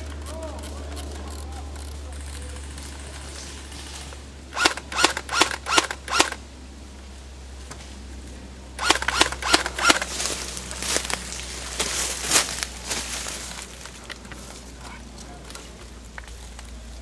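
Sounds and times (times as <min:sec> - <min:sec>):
airsoft rifle shots: 0:04.5 - 0:06.4, 0:08.8 - 0:10.1.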